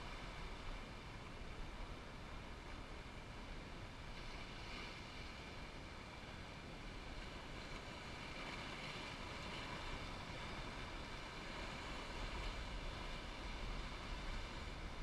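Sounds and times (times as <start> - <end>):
ocean surf washing over rocks: 3.6 - 15.0.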